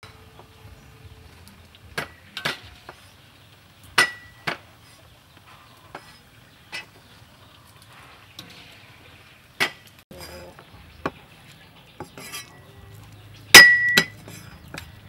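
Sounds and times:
metal spatula striking a wok: 0:03.9 - 0:04.6, 0:13.5 - 0:14.3.

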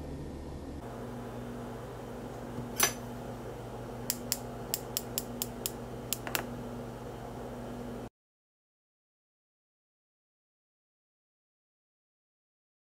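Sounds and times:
low steady hum: 0:00.0 - 0:08.1.

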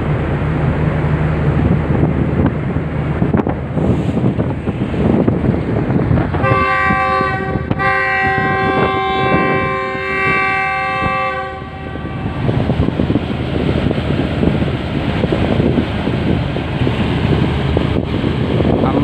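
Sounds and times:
wind buffeting microphone: 0:00.0 - 0:19.0
locomotive horn blasts: 0:06.4 - 0:12.5.

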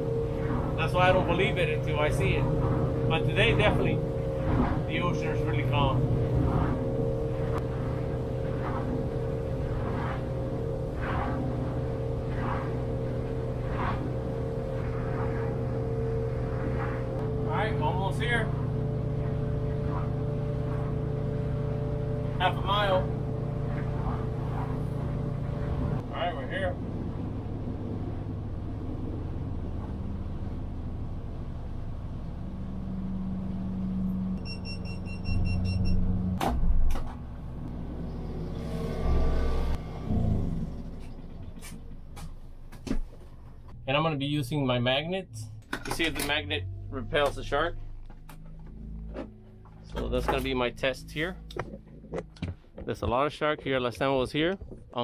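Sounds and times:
water rushing along hull: 0:00.0 - 0:33.4
boat engine running: 0:00.0 - 0:55.0
short electronic beeps: 0:34.4 - 0:36.1.

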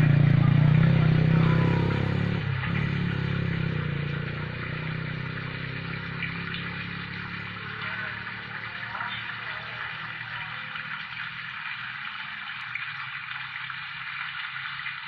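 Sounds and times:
small motorcycle engine passing: 0:00.0 - 0:11.5.

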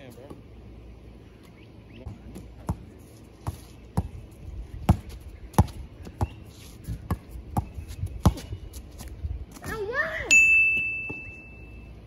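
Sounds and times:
basketball bouncing on pavement: 0:02.0 - 0:09.9, 0:10.7 - 0:11.4.

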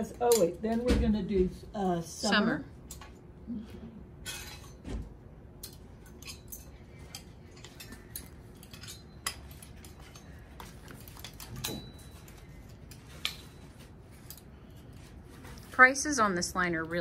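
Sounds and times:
metal hooks scraping on rail: 0:05.6 - 0:14.8.

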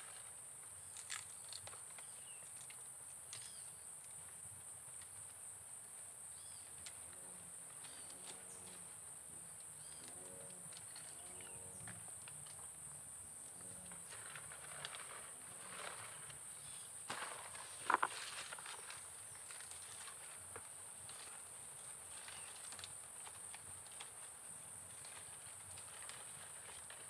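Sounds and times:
insects droning: 0:00.0 - 0:27.0.

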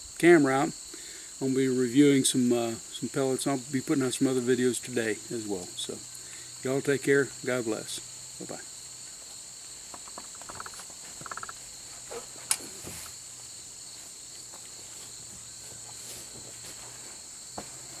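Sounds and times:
cricket chorus chirring: 0:00.0 - 0:18.0
short rattles: 0:09.9 - 0:13.0.

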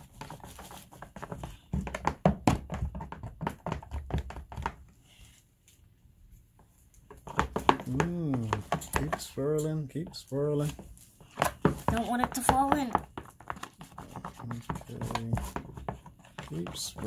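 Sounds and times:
utensil stirring shaving cream: 0:00.0 - 0:05.3, 0:06.6 - 0:17.0
utensil tapping plastic tub: 0:01.0 - 0:04.8, 0:07.1 - 0:09.8, 0:11.3 - 0:17.0.

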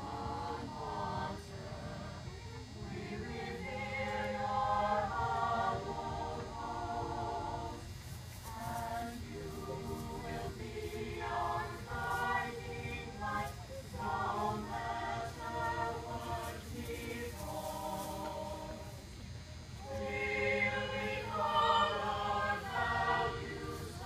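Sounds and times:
choir singing unaccompanied: 0:00.0 - 0:24.0.

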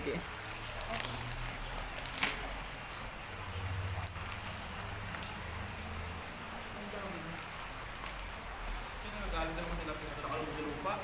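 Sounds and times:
fish flopping in a net: 0:00.2 - 0:08.9.

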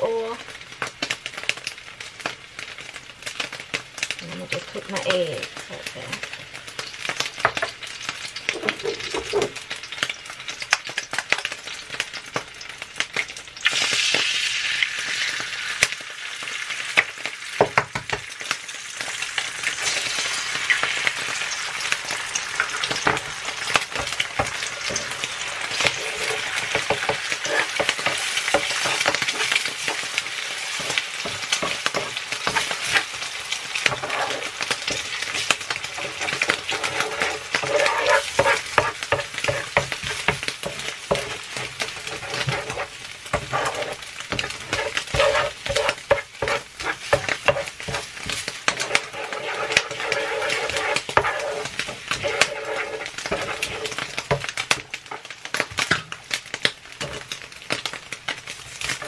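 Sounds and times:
food sizzling in oil: 0:00.0 - 0:59.0
wooden spatula scraping eggs: 0:22.8 - 0:33.1, 0:33.8 - 0:55.3.

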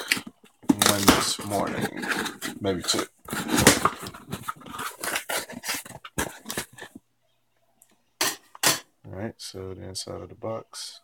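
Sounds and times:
cardboard box tearing open: 0:00.0 - 0:06.8.

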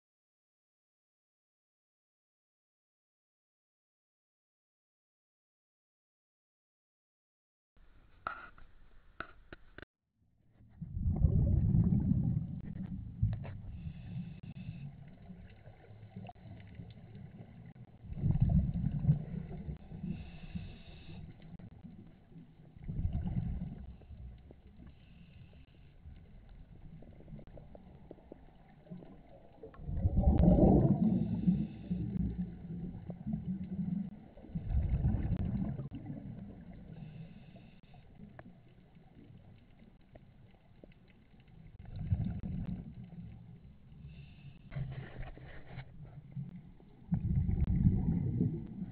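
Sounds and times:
underwater exhaust bubbles gurgling: 0:10.8 - 0:48.9.

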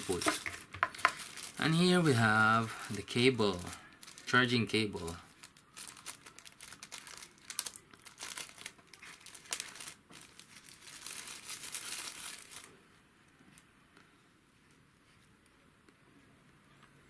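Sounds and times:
plastic bag crinkling: 0:00.0 - 0:12.8.

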